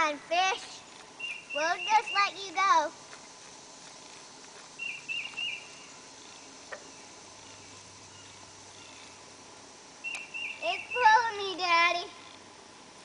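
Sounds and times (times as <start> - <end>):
faint insect hum: 0.0 - 13.0
bird chirps: 1.2 - 2.4, 4.8 - 9.2, 10.0 - 11.3
faint click: 10.1 - 10.3.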